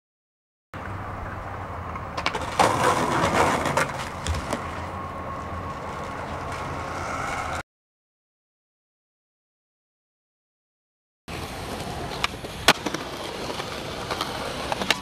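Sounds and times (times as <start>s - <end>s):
street background: 0.8s - 7.6s, 11.3s - 15.0s
skateboard clattering: 1.2s - 4.9s, 11.3s - 15.0s
board and body scraping pavement: 1.2s - 7.6s, 11.3s - 15.0s.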